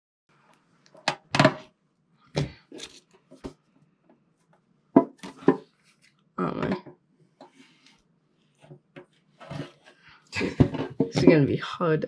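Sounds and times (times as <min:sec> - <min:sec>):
knocks and clatters: 0:10.4 - 0:11.6.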